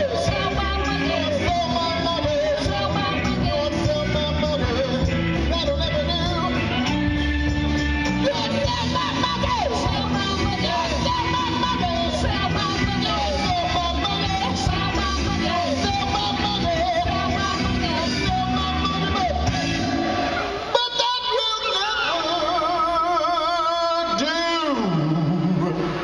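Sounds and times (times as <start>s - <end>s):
bending lead guitar melody: 0.0s - 20.7s
live rock band playing: 0.0s - 23.1s.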